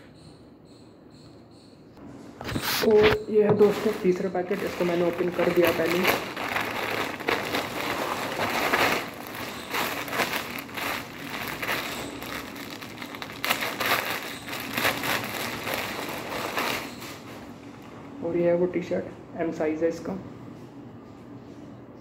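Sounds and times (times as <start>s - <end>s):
plastic packaging crinkling: 3.6s - 17.5s.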